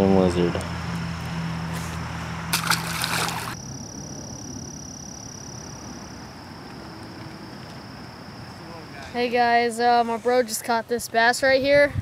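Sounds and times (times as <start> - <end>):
steady low hum: 0.1 - 9.0
high-pitched insect drone: 3.4 - 9.1.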